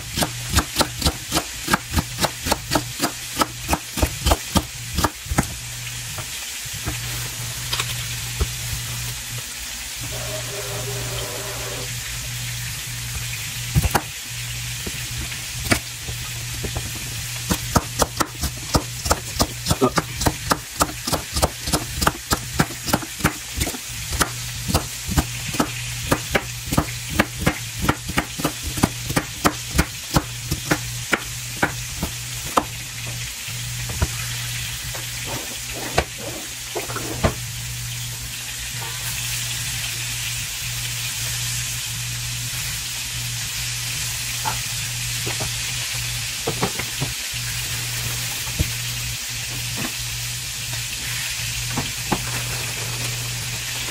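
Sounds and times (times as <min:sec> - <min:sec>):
meat sizzling in a pan: 0:00.0 - 0:53.9
knife chopping on wooden board: 0:00.2 - 0:05.5, 0:13.8 - 0:14.1, 0:17.5 - 0:32.8.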